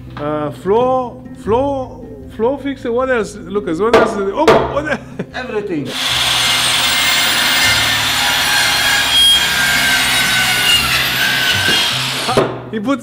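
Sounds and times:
circular saw cutting wood: 0:05.9 - 0:12.4.

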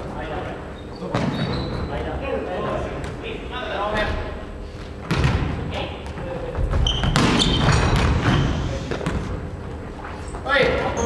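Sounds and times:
hits and thuds echoing in gym: 0:04.0 - 0:11.0
volleyball being struck: 0:05.0 - 0:05.5, 0:07.0 - 0:08.4.

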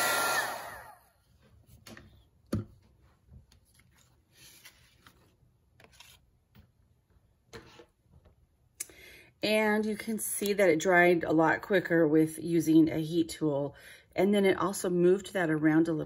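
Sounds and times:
heat gun blower whine: 0:00.0 - 0:01.1.

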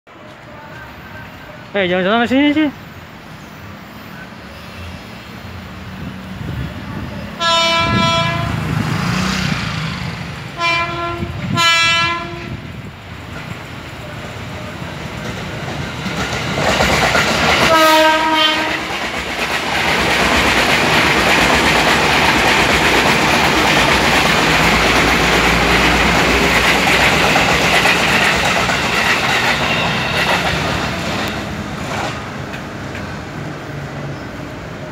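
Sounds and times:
train passing rumble and clatter: 0:00.1 - 0:34.9
train horn blasts: 0:07.4 - 0:08.7, 0:10.6 - 0:12.7, 0:17.7 - 0:19.0.

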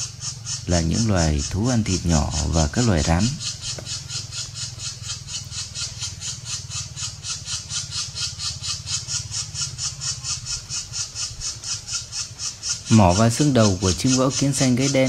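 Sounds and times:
bird nestling squeaky begging calls: 0:00.0 - 0:15.0
low steady hum: 0:00.0 - 0:15.0.

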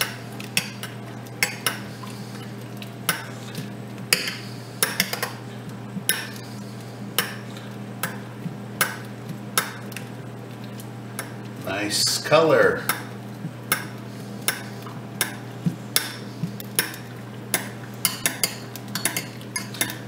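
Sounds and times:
steady low hum: 0:00.0 - 0:20.0
metal spoon clinking on saucepan: 0:18.0 - 0:20.0.

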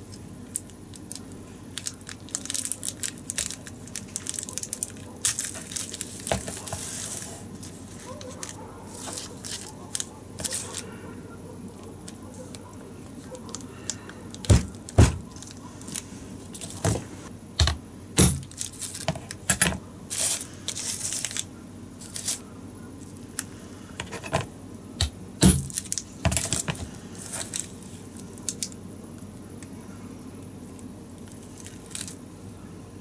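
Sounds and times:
plastic wrapper crinkling: 0:00.0 - 0:11.0, 0:12.0 - 0:16.9, 0:18.3 - 0:19.4, 0:20.1 - 0:22.4, 0:25.5 - 0:28.8, 0:30.8 - 0:32.2.

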